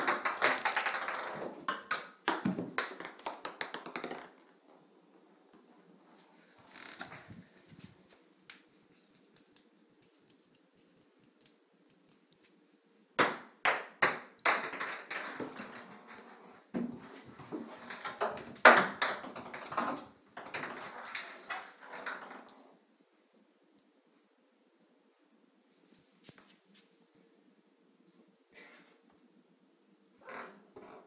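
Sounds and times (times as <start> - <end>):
ping pong balls bouncing in a bathtub: 0.0 - 4.6, 13.2 - 22.6.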